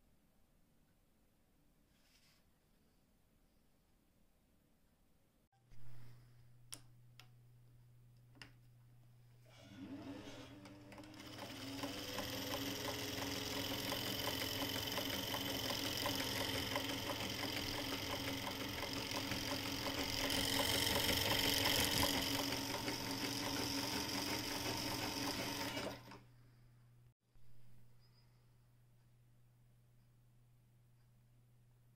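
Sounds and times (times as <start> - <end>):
sewing machine motor whine: 9.5 - 26.2
fast mechanical ticking: 11.2 - 25.7.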